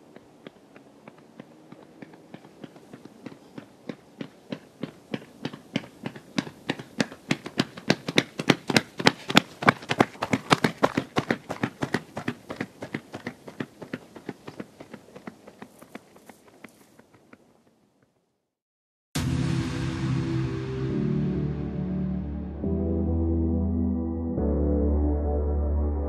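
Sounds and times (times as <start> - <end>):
running footsteps on concrete: 0.0 - 18.2.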